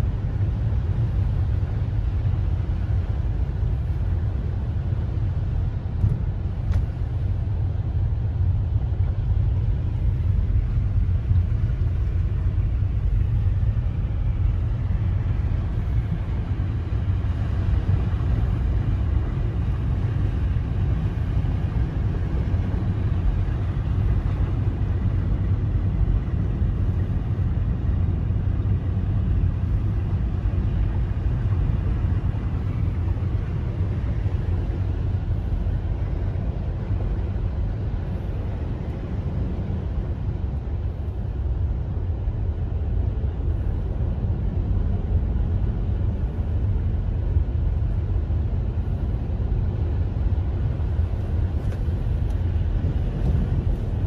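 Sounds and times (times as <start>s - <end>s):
car cabin rumble: 0.0s - 54.0s.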